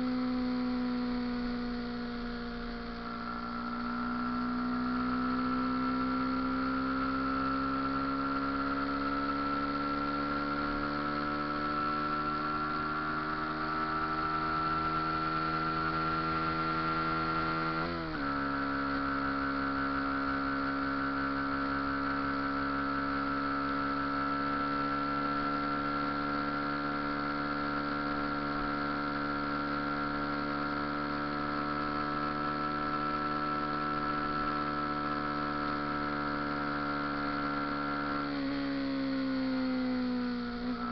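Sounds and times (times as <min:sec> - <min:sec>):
motorcycle engine droning: 0:00.0 - 0:40.9.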